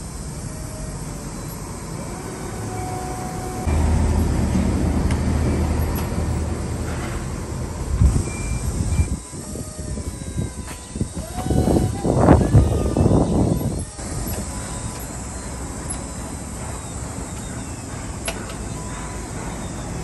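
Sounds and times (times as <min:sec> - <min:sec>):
forklift engine humming: 0:00.0 - 0:20.0.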